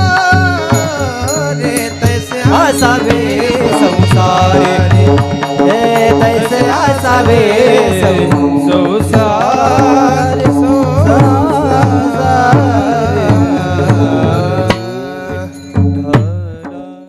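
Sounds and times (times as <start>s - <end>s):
plucked string drone: 0.0s - 16.6s
hand drum beat: 0.0s - 16.8s
harmonium: 0.0s - 17.0s
men singing a melodic chant: 0.0s - 17.0s.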